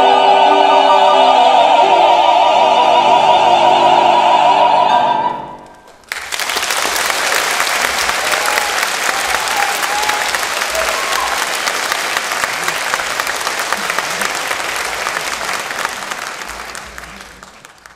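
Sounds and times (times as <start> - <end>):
audience applauding: 5.7 - 17.9.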